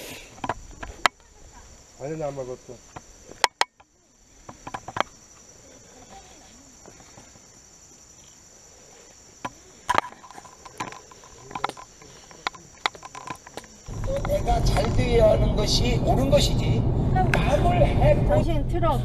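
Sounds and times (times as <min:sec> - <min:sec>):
insects chirping: 0:00.0 - 0:19.0
sharp clicks and knocks: 0:09.4 - 0:15.0.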